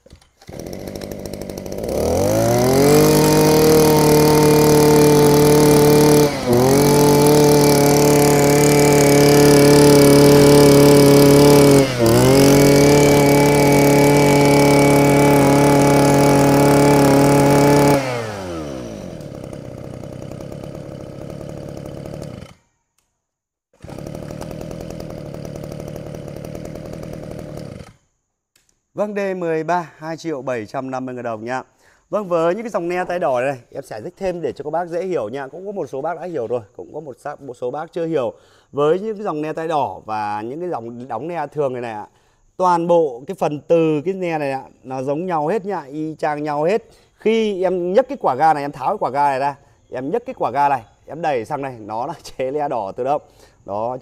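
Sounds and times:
brush cutter engine revving: 0:00.0 - 0:22.6, 0:23.8 - 0:28.0.

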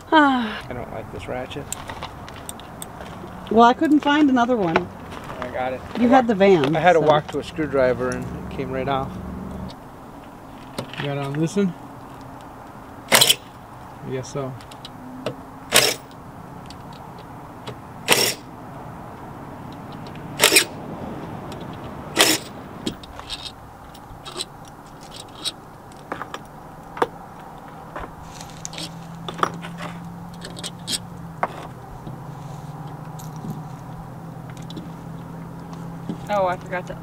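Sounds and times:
cordless power driver bursts: 0:13.1 - 0:13.5, 0:15.7 - 0:16.1, 0:18.1 - 0:18.4, 0:20.4 - 0:20.7, 0:22.2 - 0:22.6.

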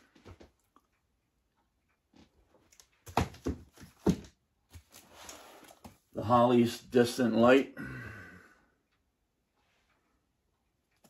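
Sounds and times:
cardboard sleeves tapping: 0:03.0 - 0:06.0
soft sliding rustle: 0:05.0 - 0:06.0.

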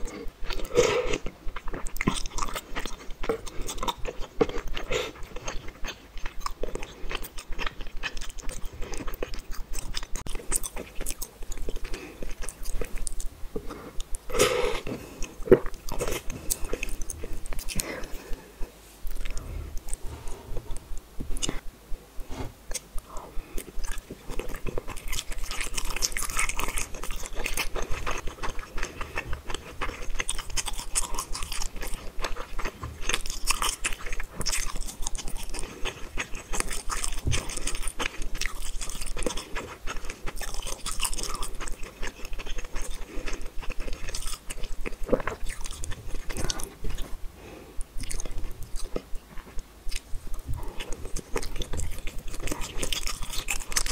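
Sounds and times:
close chewing mouth clicks: 0:22.7 - 0:47.2, 0:47.8 - 0:53.9.

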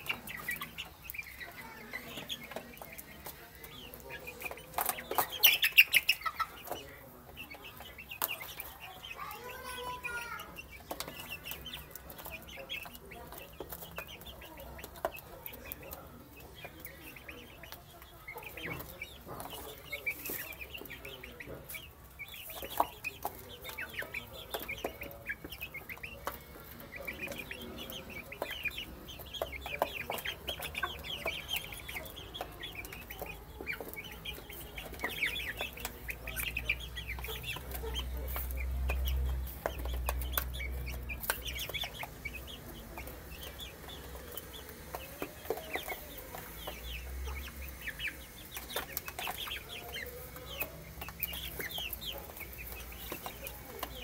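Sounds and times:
chicks peeping: 0:00.0 - 0:54.0.

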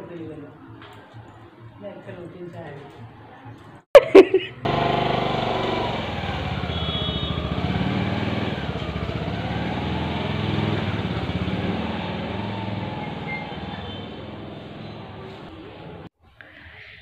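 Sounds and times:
small motorcycle engine: 0:04.6 - 0:16.1.

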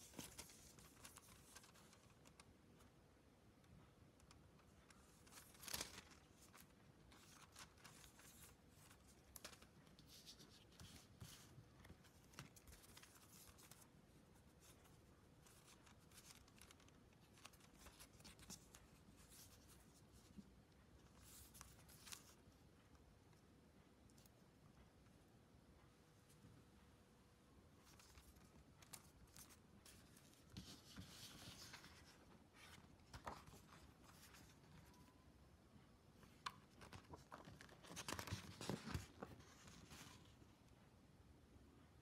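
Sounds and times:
small clicks of packaging: 0:04.2 - 0:09.7.

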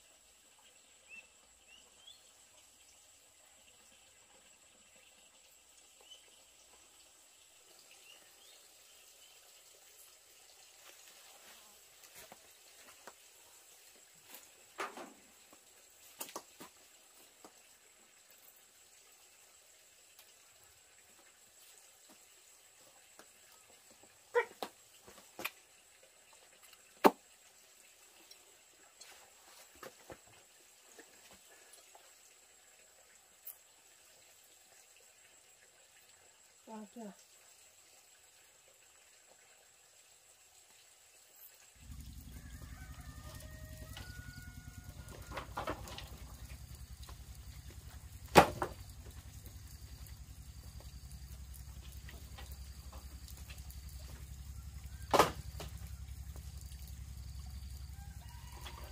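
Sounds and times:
small engine running: 0:41.8 - 0:58.9.

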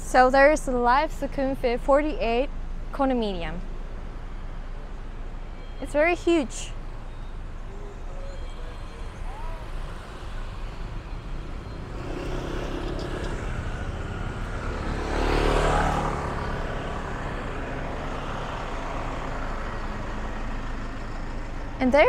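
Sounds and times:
hum of road traffic: 0:00.0 - 0:22.0
vehicle passing close: 0:09.5 - 0:21.3.

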